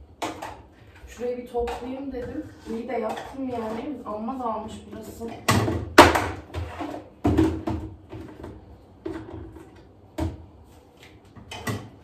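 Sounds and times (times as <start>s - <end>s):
plastic containers knocking: 5.2s - 10.4s.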